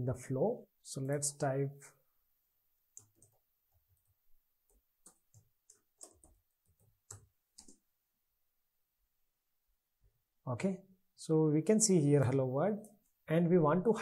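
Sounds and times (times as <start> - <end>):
keyboard keystrokes: 4.7 - 7.8.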